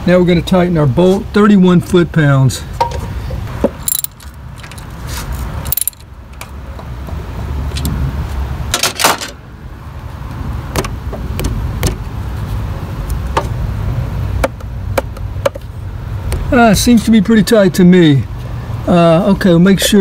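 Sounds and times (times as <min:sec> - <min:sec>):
socket wrench clicking: 0:05.7 - 0:06.0.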